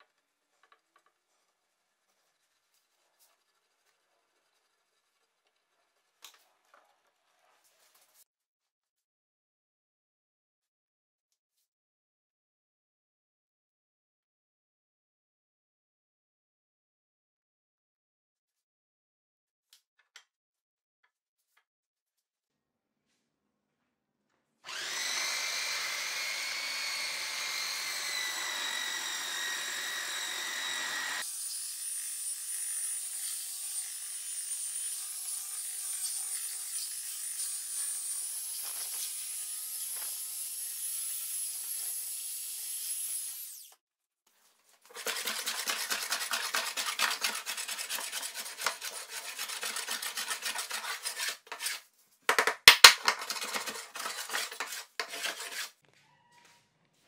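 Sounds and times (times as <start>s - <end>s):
belt sander whine: 24.7s - 31.2s
hand plane scraping wood: 44.9s - 51.9s, 53.1s - 55.8s.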